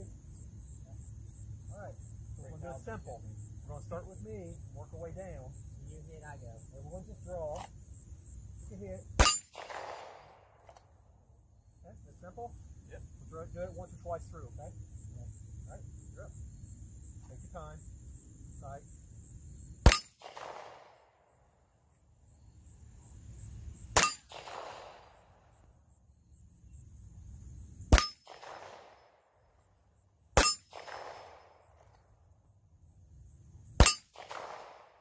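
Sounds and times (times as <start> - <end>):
steel target clanging: 9.2 - 9.6, 19.9 - 20.2, 24.0 - 24.3, 28.0 - 28.3, 30.4 - 30.8, 33.8 - 34.2
handgun shots: 9.2 - 10.8, 19.8 - 21.0, 24.0 - 25.0, 27.9 - 29.0, 30.4 - 31.5, 33.8 - 34.9.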